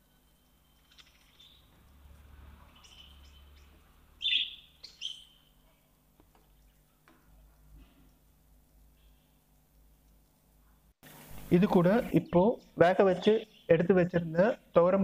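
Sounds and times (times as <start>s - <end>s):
faint low hum: 0.0s - 15.0s
short high bird chirps: 2.7s - 5.5s.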